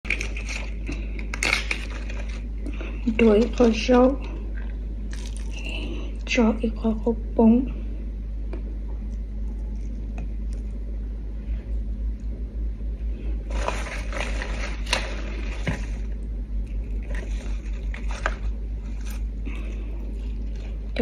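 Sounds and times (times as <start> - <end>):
low hum: 0.0 - 21.0
lettuce leaves rustling: 13.4 - 16.1.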